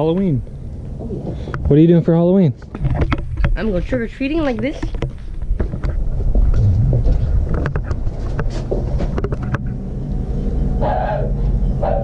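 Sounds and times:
wind rumble: 2.9s - 10.0s
microphone handling noise: 4.6s - 9.7s.

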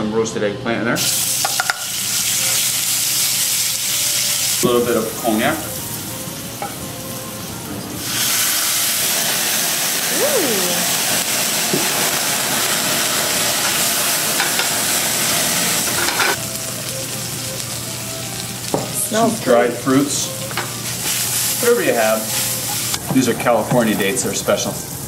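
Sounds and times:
flambe rushing hiss: 1.0s - 4.7s, 8.0s - 23.3s
alcohol sizzling in a pan: 1.0s - 25.0s.

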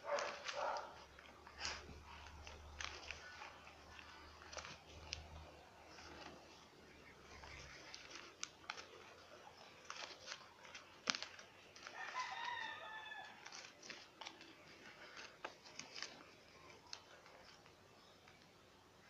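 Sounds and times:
paper crinkling and clicks: 0.0s - 18.6s
rooster crowing: 11.9s - 13.6s.

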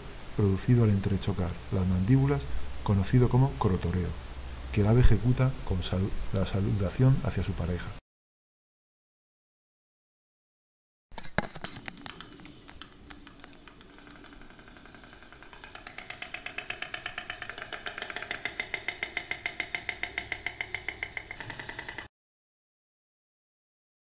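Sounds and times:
stork clattering its bill: 11.2s - 22.1s.

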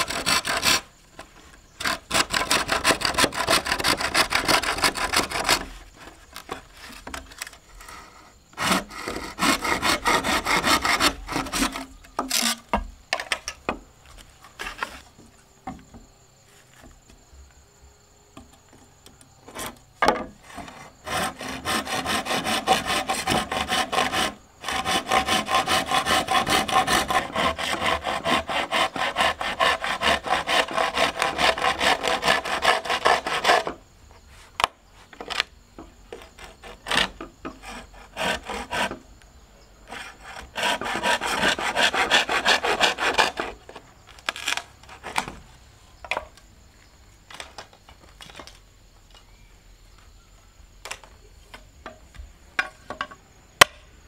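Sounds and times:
hand saw cutting bamboo: 0.0s - 0.9s, 1.8s - 12.8s, 20.4s - 33.8s, 36.2s - 39.1s, 39.8s - 45.4s.

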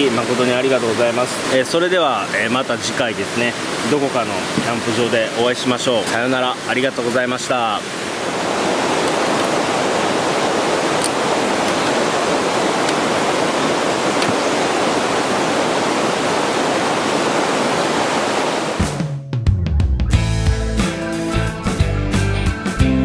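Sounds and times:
mountain stream rushing: 0.0s - 18.9s.

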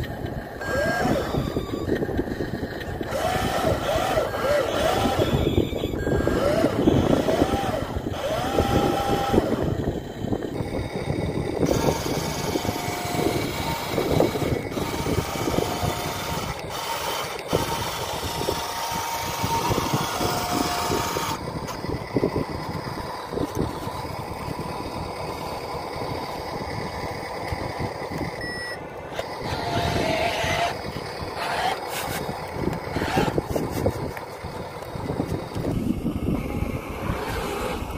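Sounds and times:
model truck rumble and knocking: 0.0s - 37.9s
short electronic beeps: 28.4s - 28.8s.

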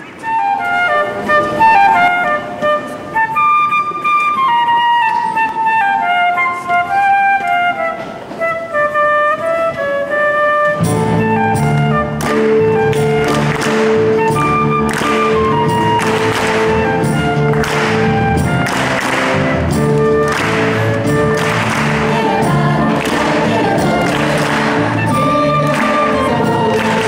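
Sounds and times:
solo woodwind melody: 0.0s - 27.0s
band with bass and beat: 10.7s - 27.0s
hand claps: 11.6s - 27.0s.

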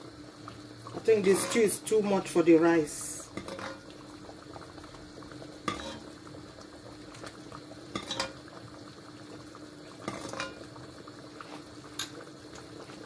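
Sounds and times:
stew bubbling: 0.0s - 13.0s
utensil scooping stew: 3.3s - 6.4s.

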